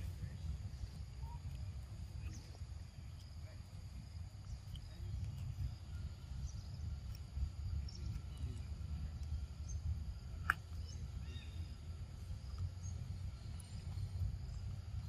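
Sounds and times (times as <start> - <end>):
insect calls: 0.0 - 15.0
low forest rumble: 0.0 - 15.0
sharp bird chirp: 9.6 - 11.8
faint bird calls: 9.6 - 15.0.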